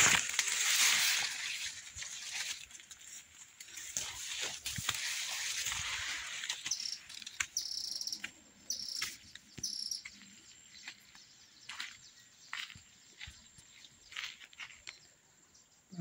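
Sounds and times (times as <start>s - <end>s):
leaves rustling against phone: 0.0s - 8.3s
cricket chirping trills: 0.1s - 16.0s.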